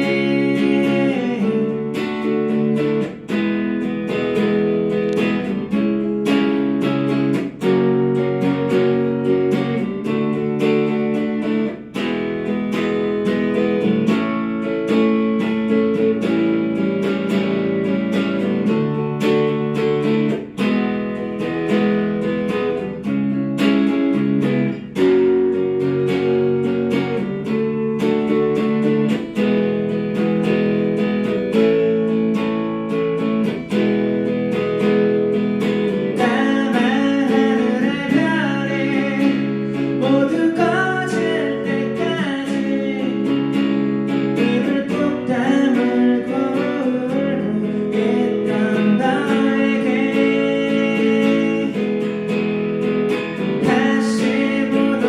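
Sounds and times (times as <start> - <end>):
person singing: 0.0 - 3.4, 35.9 - 52.4, 53.2 - 55.0
electric guitar plucked chords: 0.0 - 55.0.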